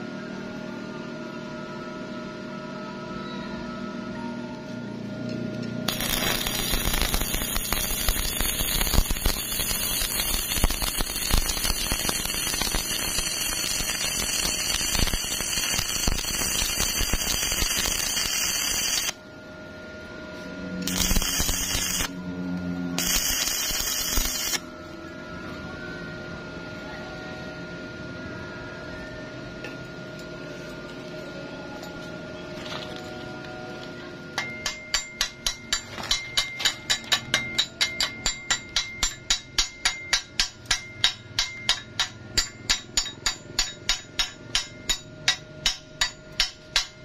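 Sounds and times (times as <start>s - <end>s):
welding arc crackling: 5.9s - 19.2s, 20.8s - 22.2s, 23.0s - 24.6s.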